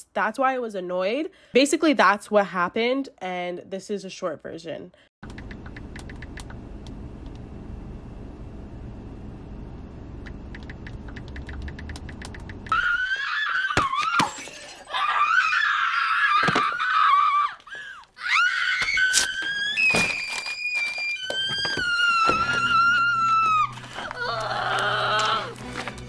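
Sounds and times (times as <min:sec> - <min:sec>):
typing on a smartphone: 0:05.2 - 0:06.6, 0:10.5 - 0:12.7
high-pitched wavering wail: 0:18.2 - 0:25.6.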